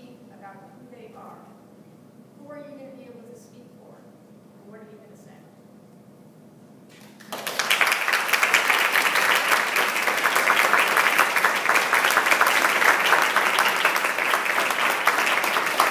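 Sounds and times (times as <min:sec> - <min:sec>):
crowd applauding: 0:06.9 - 0:15.9.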